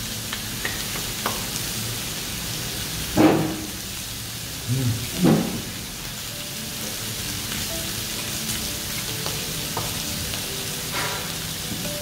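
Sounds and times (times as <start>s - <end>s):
meat sizzling on grill pan: 0.0s - 12.0s.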